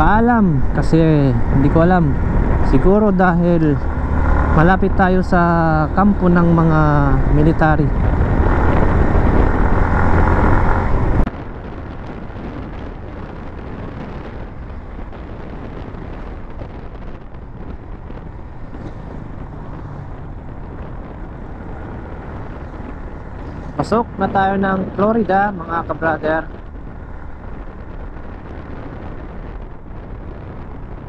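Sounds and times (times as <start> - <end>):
motorcycle road noise: 0.0 - 31.0
wind on microphone: 0.0 - 31.0.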